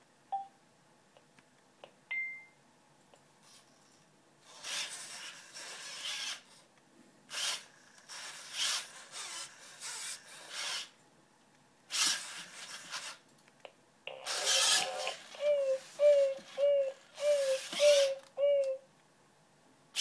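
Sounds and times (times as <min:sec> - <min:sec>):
robot dog sound effects: 0:14.1 - 0:15.4.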